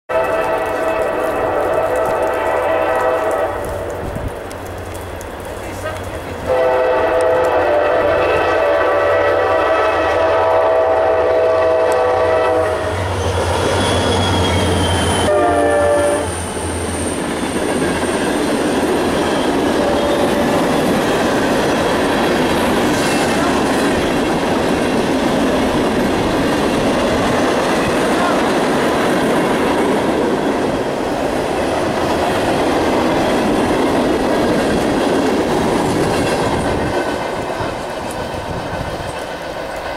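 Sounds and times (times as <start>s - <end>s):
locomotive horn: 0.1s - 4.0s, 5.8s - 13.2s, 14.1s - 16.4s
train wheels clacking on rails: 16.3s - 39.9s.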